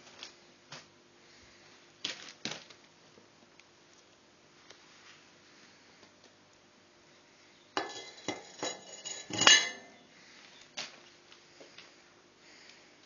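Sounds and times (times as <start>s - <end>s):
metal lid clanking on stove: 7.8s - 10.0s.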